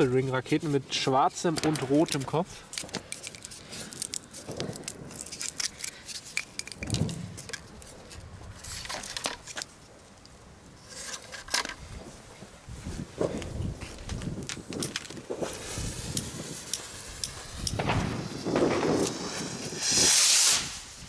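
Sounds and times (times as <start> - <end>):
sharp clicks and scrapes: 1.5 - 9.8, 10.8 - 11.8, 14.1 - 19.2
plastic wrapper crinkling: 2.0 - 8.2.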